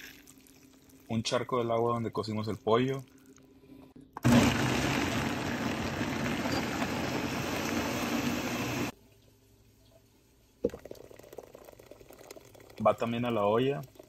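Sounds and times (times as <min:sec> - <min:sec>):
blender running: 0:04.2 - 0:08.9.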